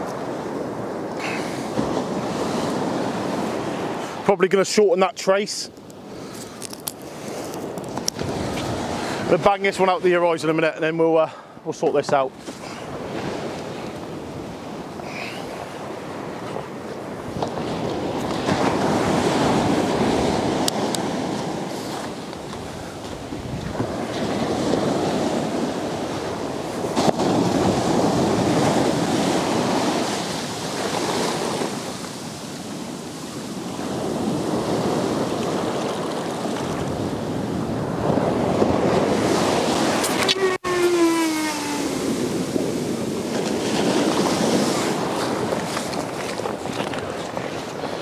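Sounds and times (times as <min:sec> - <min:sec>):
wind on microphone: 0:00.0 - 0:04.2, 0:06.0 - 0:10.0, 0:12.2 - 0:48.0
surf breaking on beach: 0:00.0 - 0:11.2, 0:11.9 - 0:48.0
falling tone: 0:40.1 - 0:42.4.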